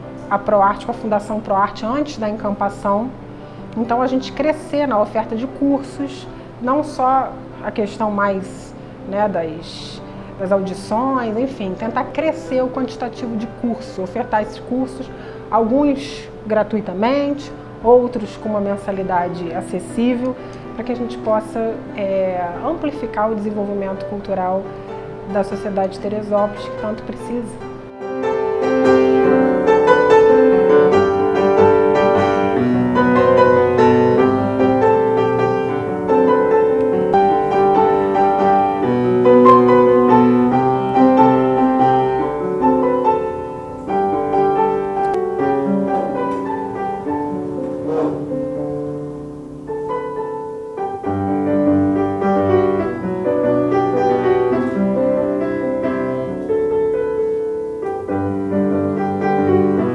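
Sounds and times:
solo piano piece: 0:00.0 - 0:59.9.

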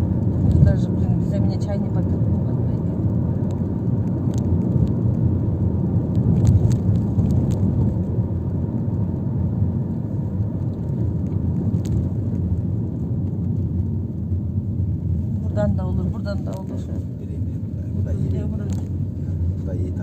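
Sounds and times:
bus engine and road noise: 0:00.0 - 0:20.0
light clicks and rattles: 0:17.6 - 0:19.5.

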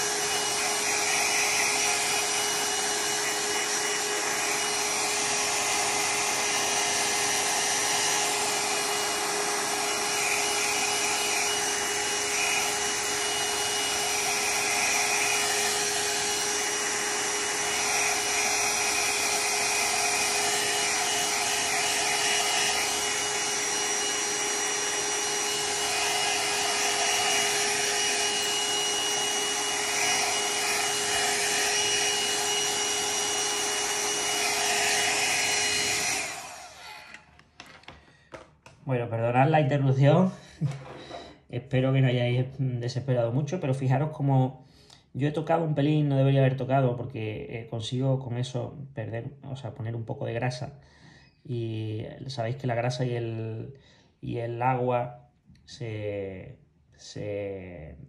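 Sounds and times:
hair dryer blowing: 0:00.0 - 0:38.8, 0:39.4 - 0:41.4.

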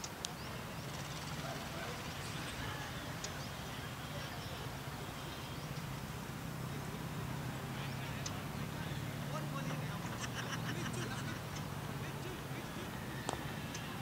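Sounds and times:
faint distant voices: 0:00.0 - 0:14.0.

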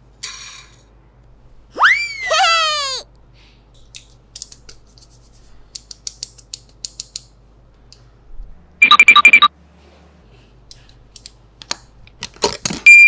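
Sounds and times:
electronic trill of beeps: 0:08.8 - 0:09.5.

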